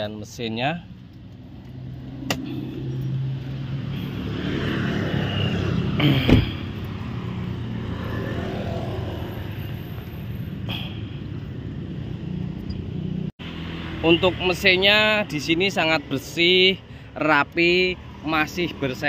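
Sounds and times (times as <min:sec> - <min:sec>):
motorbike passing: 0:01.4 - 0:10.7
loud thump: 0:06.2 - 0:06.6.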